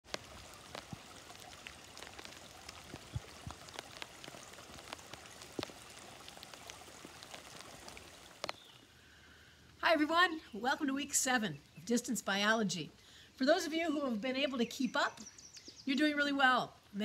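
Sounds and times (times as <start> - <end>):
water drips and plinks: 0.0 - 8.9
water trickling over rock: 0.0 - 9.0.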